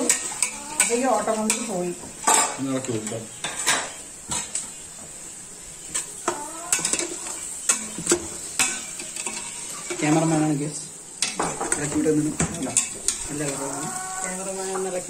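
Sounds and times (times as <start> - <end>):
metal spatula scraping a pot: 0.0 - 1.7, 6.7 - 10.2
onions sizzling in oil: 0.0 - 15.0.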